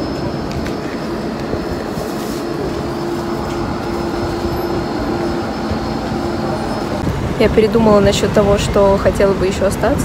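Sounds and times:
faint high whine: 0.0 - 7.1
electric train equipment humming: 0.0 - 10.0.

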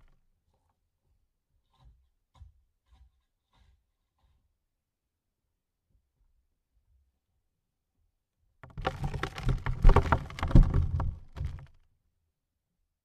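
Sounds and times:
dirt falling on coffin lid: 8.7 - 11.7.

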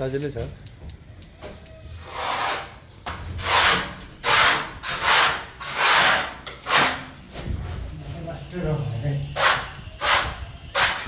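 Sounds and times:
hand sanding a plastered wall: 2.0 - 8.6, 9.2 - 11.0.

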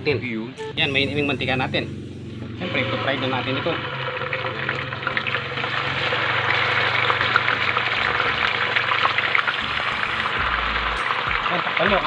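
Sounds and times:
pork deep-frying in hot oil: 2.8 - 12.0.

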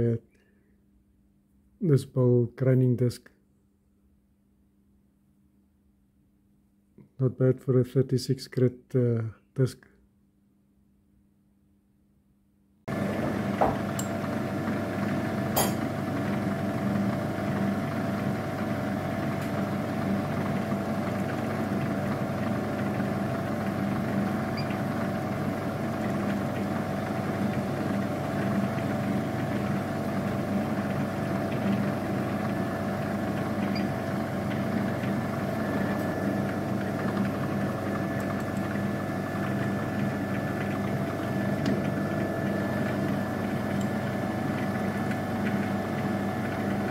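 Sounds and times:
milling machine motor whining: 12.9 - 46.9.

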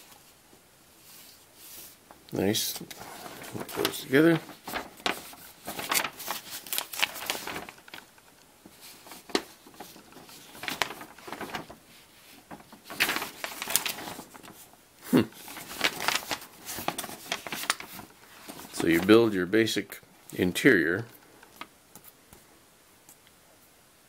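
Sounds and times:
paper rustling and crinkling: 1.0 - 19.8.

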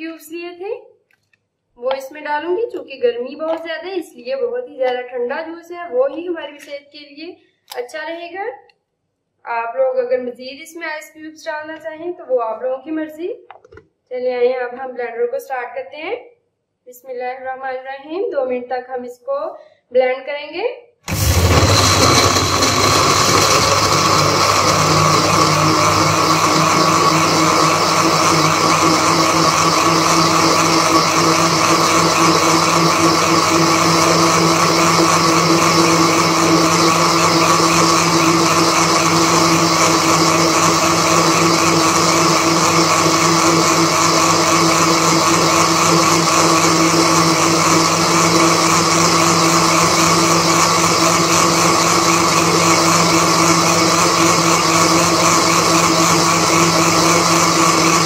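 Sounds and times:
electric blender whining: 21.1 - 58.0.

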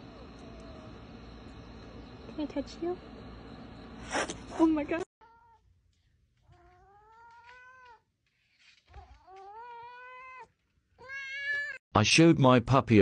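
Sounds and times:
cat yowling: 6.5 - 8.0, 8.9 - 11.8.

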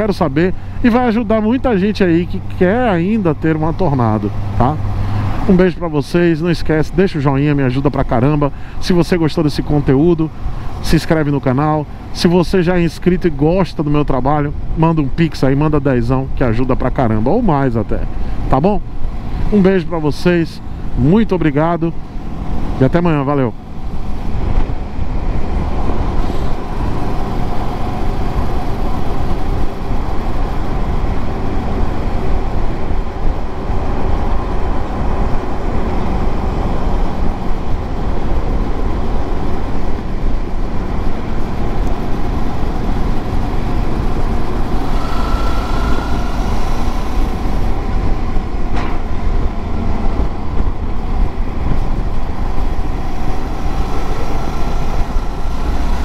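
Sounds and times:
wind rushing over microphone: 20.6 - 56.0
brief rising high tone: 44.8 - 47.7.

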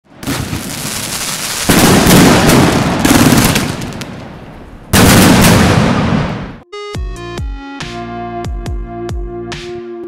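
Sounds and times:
fireworks firing and crackling: 0.1 - 6.6.

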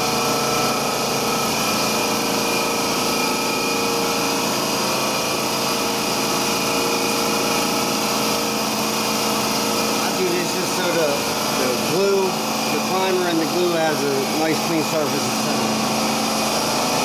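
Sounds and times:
motor droning: 8.3 - 17.0.

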